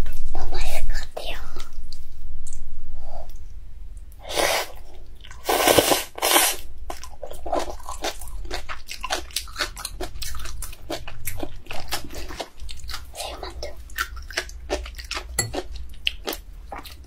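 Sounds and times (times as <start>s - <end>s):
person slurping noodles: 5.4s - 6.6s.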